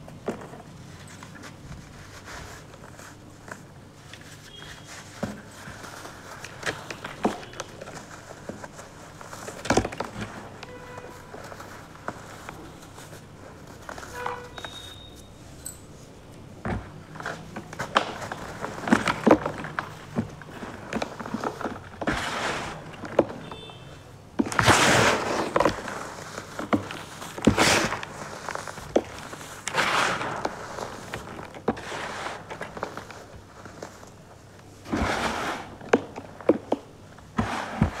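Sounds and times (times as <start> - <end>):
sand-cement chunks crushed by hand: 24.4 - 33.2.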